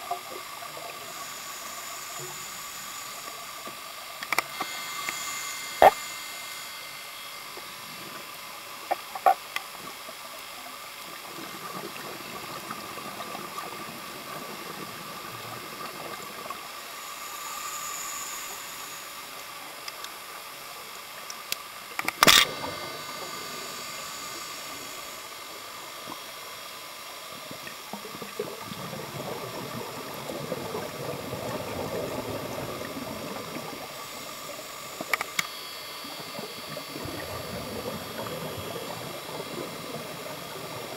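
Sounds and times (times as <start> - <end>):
underwater hiss: 0.0 - 40.9
bubbling of exhaled air: 27.5 - 35.0.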